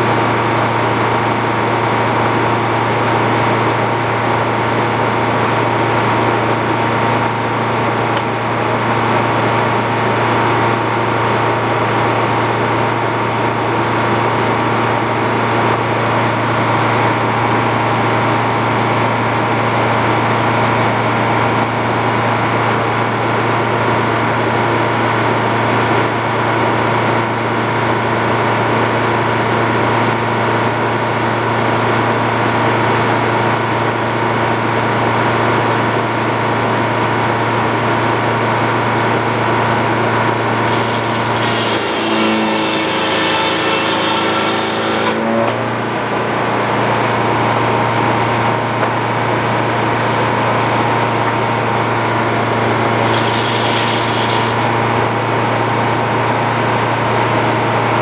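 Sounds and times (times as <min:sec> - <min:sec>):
circular saw drone: 0:39.9 - 0:45.6, 0:51.9 - 0:55.3.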